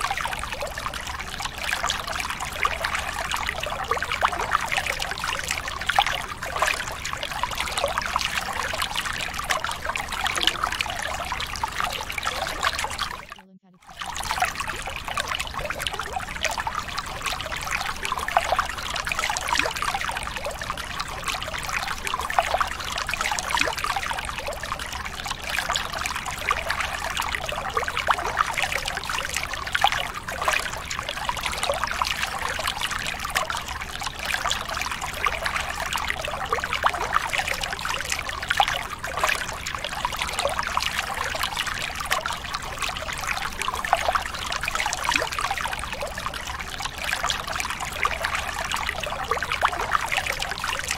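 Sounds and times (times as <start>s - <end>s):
water trickling: 0.0s - 50.9s.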